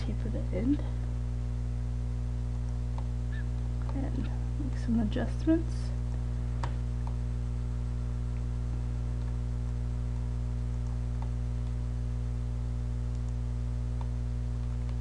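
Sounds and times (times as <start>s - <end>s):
low electrical hum: 0.0s - 15.0s
computer mouse clicks: 13.1s - 13.4s.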